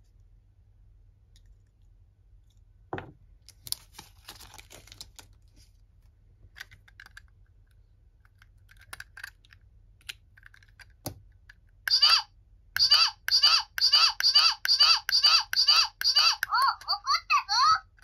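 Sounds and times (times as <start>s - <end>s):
plastic toy parts clicking: 6.6s - 12.0s.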